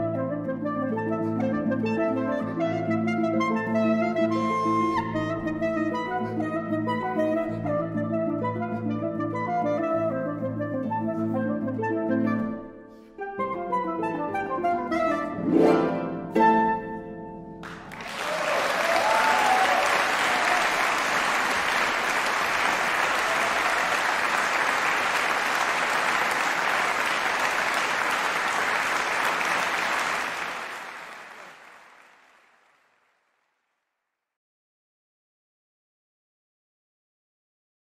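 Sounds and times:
audience applause: 17.6 - 33.2.

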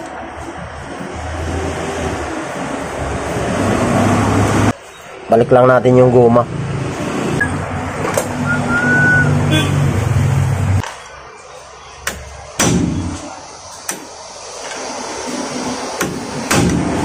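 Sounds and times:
engine humming: 6.4 - 17.0.

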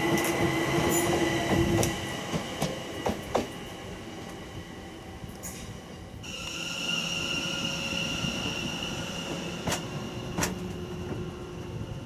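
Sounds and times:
train wheels squealing: 5.4 - 11.0.

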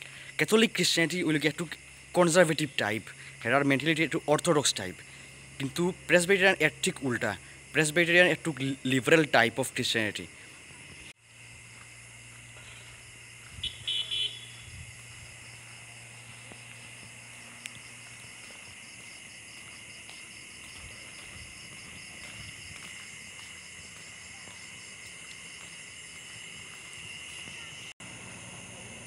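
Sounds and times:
crickets and night insects chirring: 0.0 - 29.0
vehicle horn beeps: 13.6 - 14.7.

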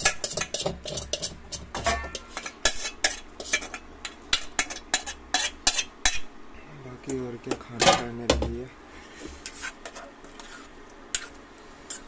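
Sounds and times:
spoon scraping steel plates: 0.0 - 3.8.

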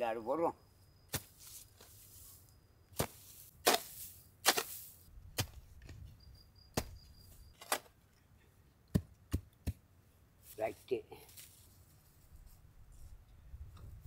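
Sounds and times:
blade chopping: 3.0 - 4.8.

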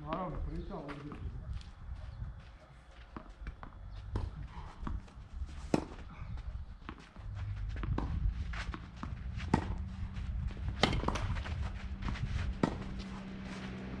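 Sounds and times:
tennis ball knocks: 10.7 - 11.4.

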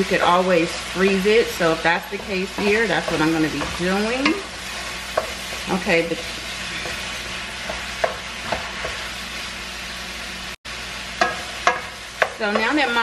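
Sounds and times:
meat sizzling in a frying pan: 0.0 - 13.0
spatula scraping a pan: 0.1 - 9.2.

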